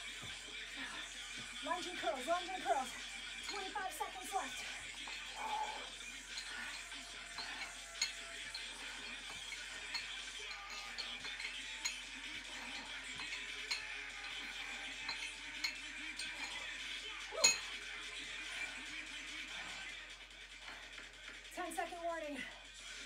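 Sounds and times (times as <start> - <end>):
faint background music: 0.0 - 23.0
metal dumbbells clinking: 2.0 - 17.9.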